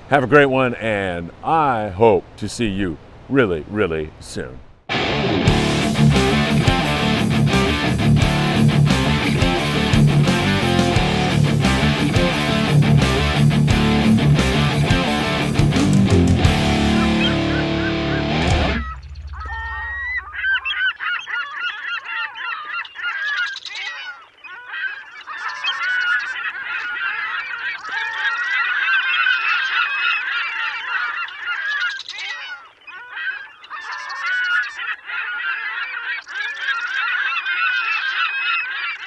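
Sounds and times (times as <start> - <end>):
flock of birds calling: 16.4 - 39.0.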